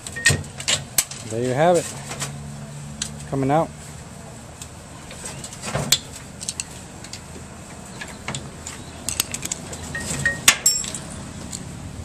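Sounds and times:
metallic clinks and knocks: 0:09.0 - 0:11.6.

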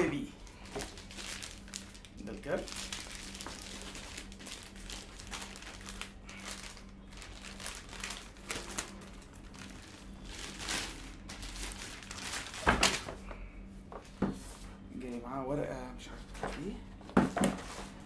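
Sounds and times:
plastic bag crinkling: 0:00.4 - 0:13.1.

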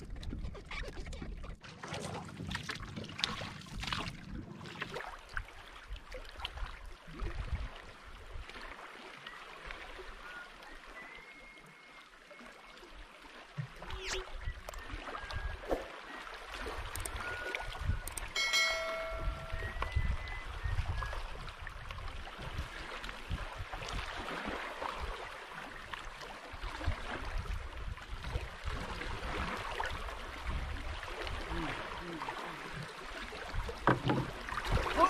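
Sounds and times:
wind rumbling on microphone: 0:00.0 - 0:08.6, 0:16.6 - 0:18.4, 0:19.0 - 0:25.2, 0:26.5 - 0:32.0
water lapping around boat: 0:00.0 - 0:35.0.

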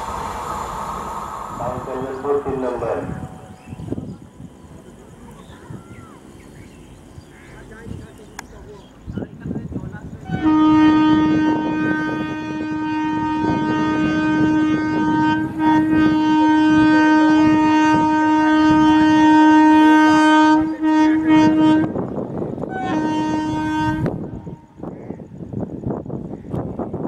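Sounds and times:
train rumble: 0:00.0 - 0:27.0
electric locomotive horn: 0:10.2 - 0:24.7.

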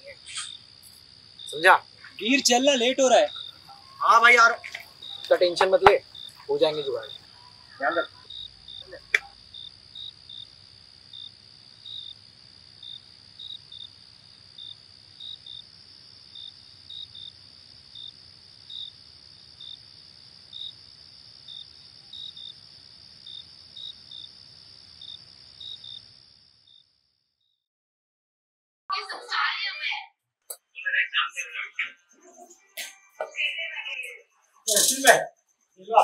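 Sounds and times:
crickets chirping: 0:00.0 - 0:27.6, 0:28.9 - 0:36.0.

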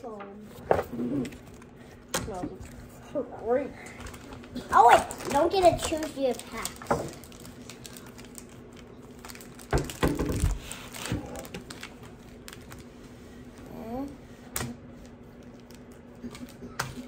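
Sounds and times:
foil wrappers crinkling: 0:03.8 - 0:13.1, 0:15.0 - 0:17.0
packs tapping on table: 0:09.6 - 0:11.8.

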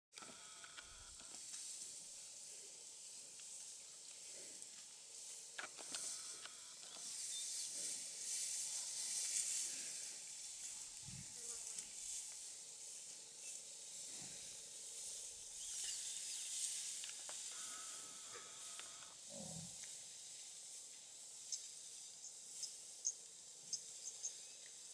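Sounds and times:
high hiss: 0:01.0 - 0:24.9
faint bird chirps: 0:15.6 - 0:16.6.

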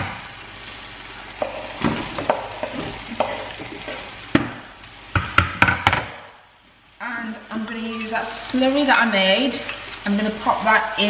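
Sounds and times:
vegetables sizzling in frying pan: 0:00.0 - 0:11.0
utensil knocking pan: 0:01.4 - 0:06.3.

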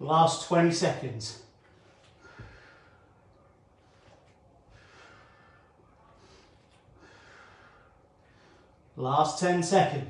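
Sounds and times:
man breathing heavily: 0:01.6 - 0:09.0.

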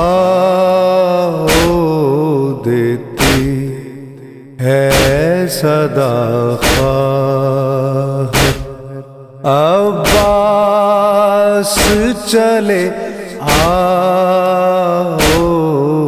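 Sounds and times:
man chanting a lament: 0:00.0 - 0:16.0
sharp rhythmic beat: 0:03.2 - 0:03.6, 0:04.9 - 0:05.2, 0:08.4 - 0:08.8, 0:10.1 - 0:10.6, 0:13.4 - 0:13.9.

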